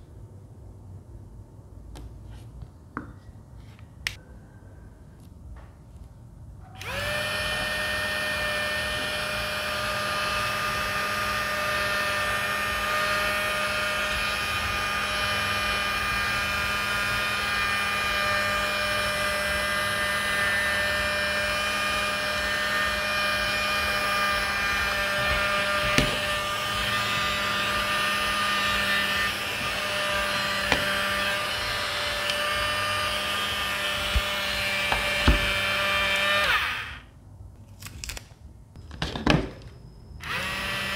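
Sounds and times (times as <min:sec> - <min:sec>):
mini fan motor whine: 0:06.8 - 0:37.1, 0:40.2 - 0:40.9.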